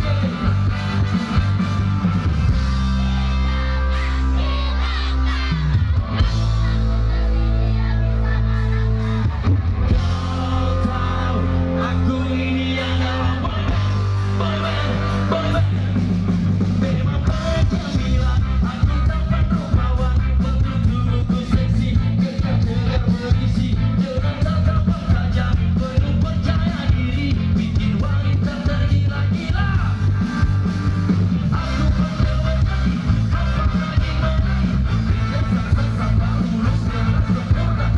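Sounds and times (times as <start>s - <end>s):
live band playing: 0.0s - 37.9s
person singing: 3.0s - 30.0s, 31.5s - 37.9s.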